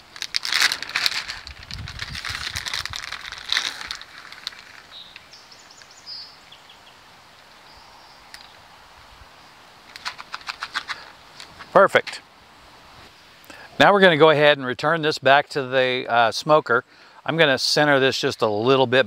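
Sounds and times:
plastic bag crinkling: 0.0 - 5.1, 9.9 - 11.1
faint bird chirps: 4.9 - 8.7.

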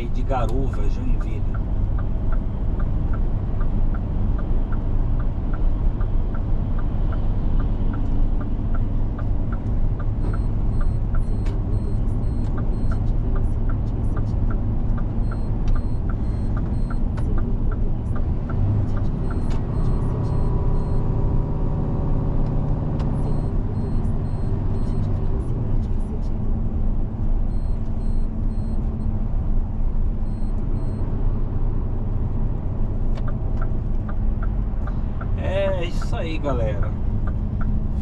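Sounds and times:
light regular ticking: 0.0 - 21.1, 22.5 - 25.2, 27.5 - 29.1, 30.2 - 31.0, 32.1 - 38.0
diesel engine and tyre drone: 0.0 - 38.0.

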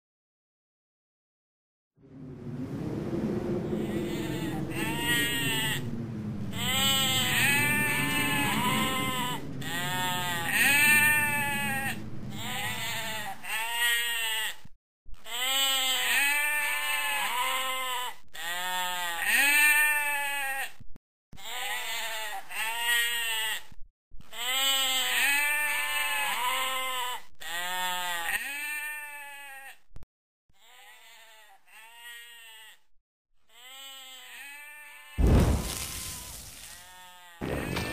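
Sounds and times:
low steady rumble: 2.0 - 13.5
sheep bleating: 3.8 - 14.7, 15.3 - 20.7, 21.4 - 23.7, 24.3 - 29.8, 30.6 - 32.8, 33.5 - 37.9.

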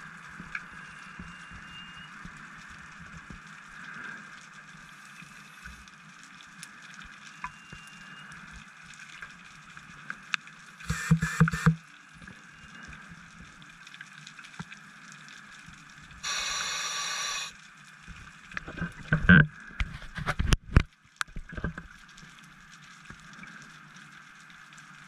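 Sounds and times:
small clicks: 10.3 - 12.4
faint underwater hiss: 16.2 - 17.8.

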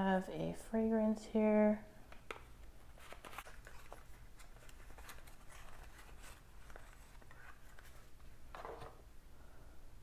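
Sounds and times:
cardboard packaging rustling: 2.8 - 9.0.

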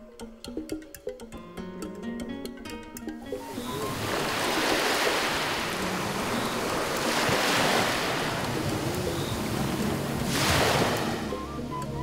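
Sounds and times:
ocean waves breaking: 3.3 - 12.0.

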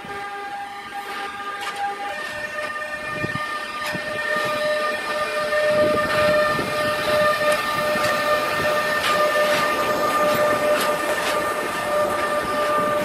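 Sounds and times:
train wheels rumbling on rails: 0.0 - 13.0
clicks over rail joints: 1.1 - 2.9, 6.0 - 13.0.

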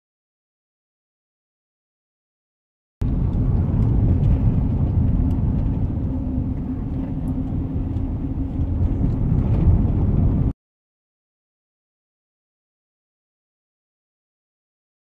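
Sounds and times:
road and engine rumble in car: 3.0 - 10.6.

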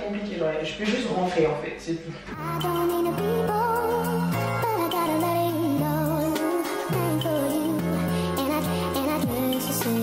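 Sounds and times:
background music with vibrato lead: 2.2 - 10.0.

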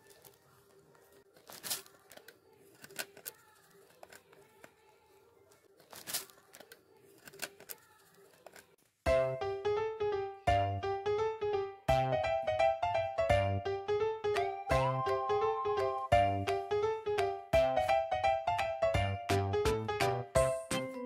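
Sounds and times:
rabbit scratching foil seal: 0.0 - 9.0
keyboard music: 9.1 - 21.0.

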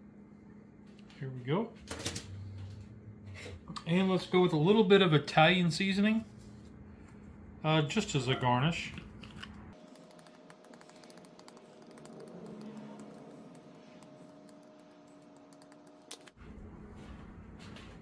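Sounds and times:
spice shaker rattling: 9.8 - 12.5.

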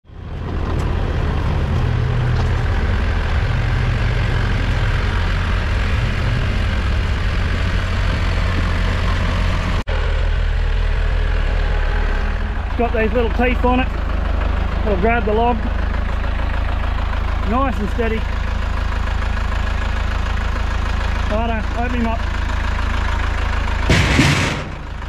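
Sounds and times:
driving and wind noise: 0.0 - 25.0
vehicle engine running: 0.0 - 25.0.

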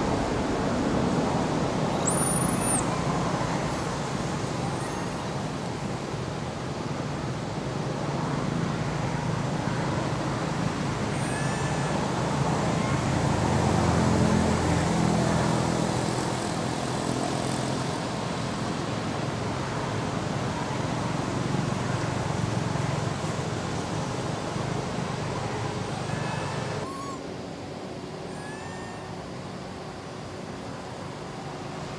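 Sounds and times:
traffic noise: 0.0 - 31.9
faint high chirps: 1.9 - 5.4, 11.0 - 12.2, 26.1 - 27.3, 28.2 - 29.3.

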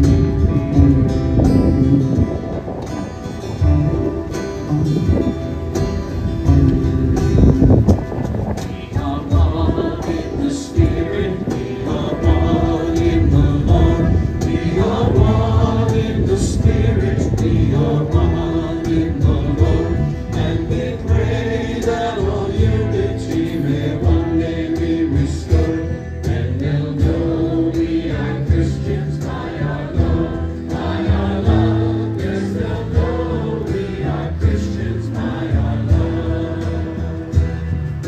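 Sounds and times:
worship band playing: 0.0 - 38.0
voices singing together: 8.2 - 38.0.

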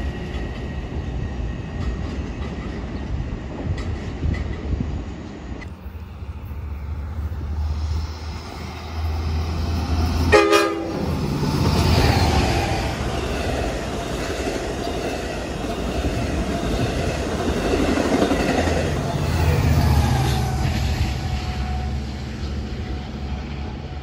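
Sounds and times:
train coaches rolling past: 0.0 - 24.0
train horn blast: 10.2 - 11.2, 20.2 - 24.0.

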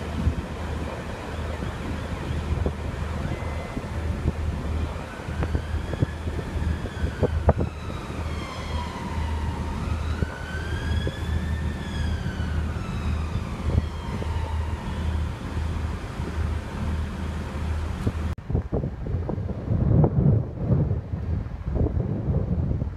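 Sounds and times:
wind rumbling on microphone: 0.0 - 22.9
siren wailing: 1.0 - 16.0.

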